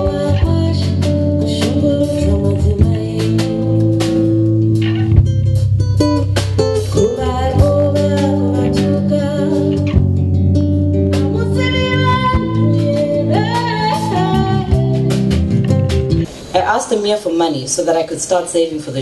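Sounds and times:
woman singing into a microphone: 0.0s - 4.4s, 6.7s - 10.2s, 11.1s - 15.5s
live instrumental accompaniment: 0.0s - 17.2s.

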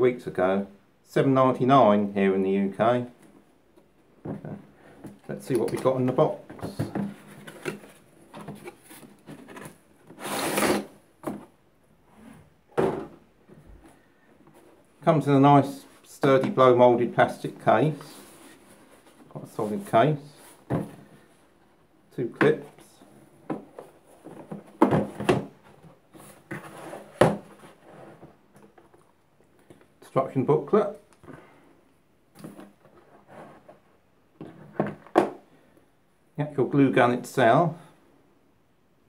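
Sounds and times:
cardboard rustling and scraping: 4.4s - 13.2s, 17.8s - 21.3s, 23.5s - 28.9s, 32.5s - 35.1s.

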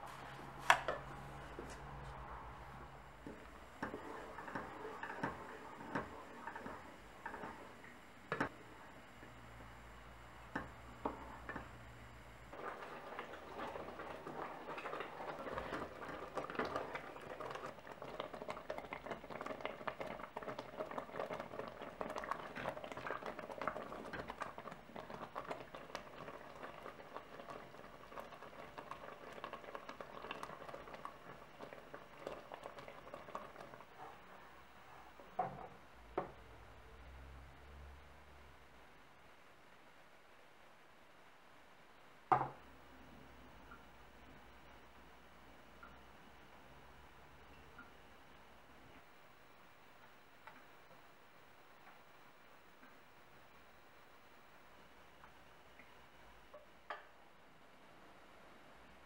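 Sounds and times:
wooden spoon stirring in pot: 0.0s - 8.6s, 12.5s - 35.8s
fruit mixture bubbling and popping: 0.5s - 34.3s.

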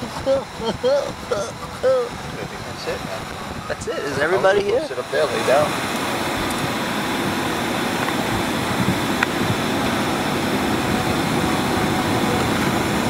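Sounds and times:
airliner cabin rushing noise: 0.0s - 13.0s.

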